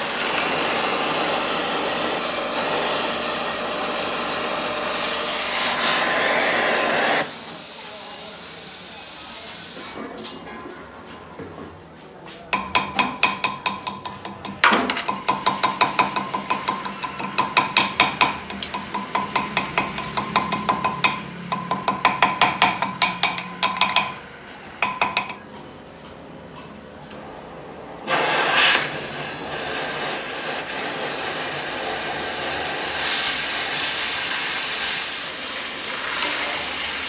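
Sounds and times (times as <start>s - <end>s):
gas torch hissing: 0.0s - 10.0s, 28.0s - 37.0s
hammer striking steel: 12.6s - 24.2s, 24.8s - 25.6s.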